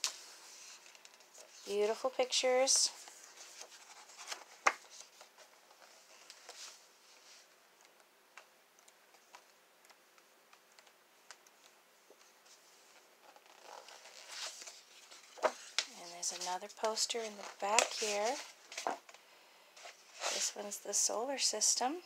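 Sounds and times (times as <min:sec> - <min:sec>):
page turning: 0:00.0 - 0:07.5, 0:11.6 - 0:19.1
book pages rustling: 0:00.0 - 0:08.0, 0:09.0 - 0:19.2, 0:19.8 - 0:20.7.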